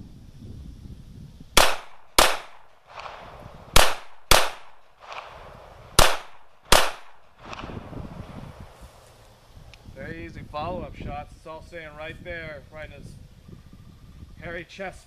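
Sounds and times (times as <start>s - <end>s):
pistol shots with echo: 1.6s - 8.6s.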